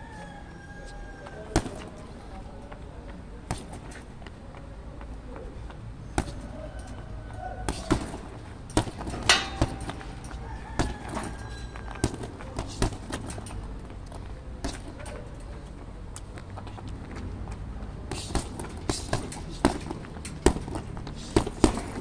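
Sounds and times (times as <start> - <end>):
boxing gloves hitting punching bag: 1.5 - 2.0, 3.4 - 4.0, 6.1 - 6.7, 7.6 - 13.6, 14.6 - 15.2, 18.1 - 22.0.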